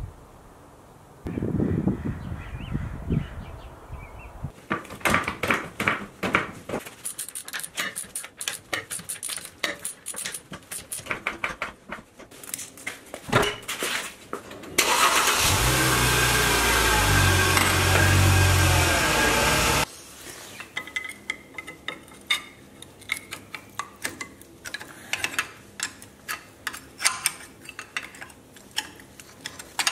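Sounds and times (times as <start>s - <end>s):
metal clicks and clanks: 7.0s - 11.8s, 20.8s - 29.9s.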